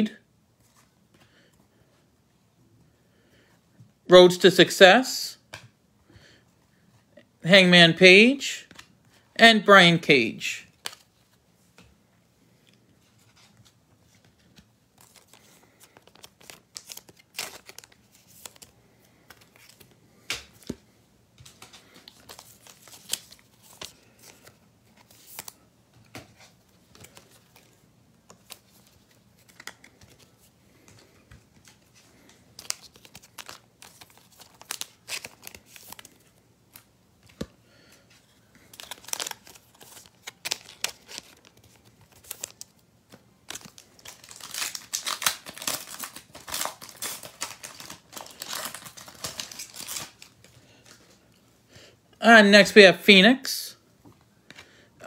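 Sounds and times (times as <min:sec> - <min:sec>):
wrapper crinkling and tearing: 0:15.0 - 0:19.9, 0:21.6 - 0:25.6, 0:31.7 - 0:36.9, 0:38.5 - 0:51.2.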